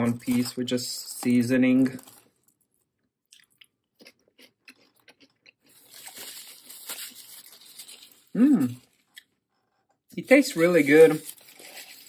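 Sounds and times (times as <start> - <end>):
crispy breading crackling: 0.0 - 9.2, 10.2 - 12.0
close crunchy chewing: 1.8 - 9.3, 11.2 - 12.0.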